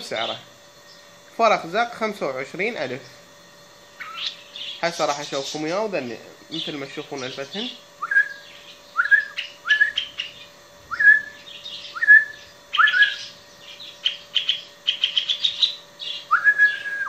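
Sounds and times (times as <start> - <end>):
young birds whistling notes: 4.0 - 5.6, 7.6 - 17.0
high bird chirps: 4.0 - 5.7, 6.5 - 17.0.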